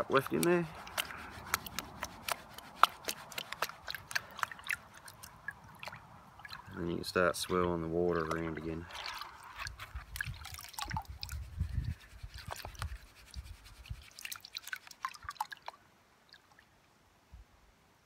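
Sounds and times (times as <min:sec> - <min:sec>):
water dripping into tub: 0:00.3 - 0:07.0, 0:14.1 - 0:16.7
water sloshing in a pan: 0:00.7 - 0:11.4.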